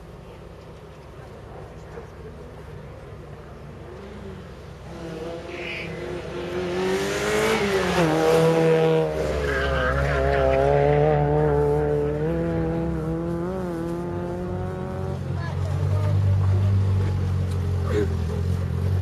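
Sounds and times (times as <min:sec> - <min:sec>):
race car engine passing by: 0:03.9 - 0:19.0.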